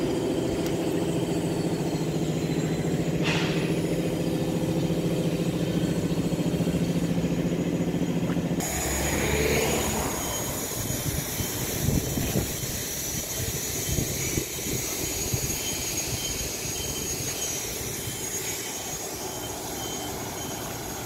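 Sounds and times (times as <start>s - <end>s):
low rumble of vehicles: 0.0s - 21.0s
faint high beep: 8.8s - 11.8s, 15.5s - 21.0s.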